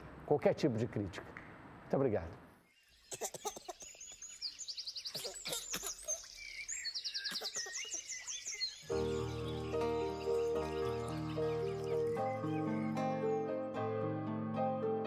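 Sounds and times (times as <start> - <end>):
birds chirping and trilling: 2.6 - 13.8
instrumental music sustained tones: 8.9 - 15.0.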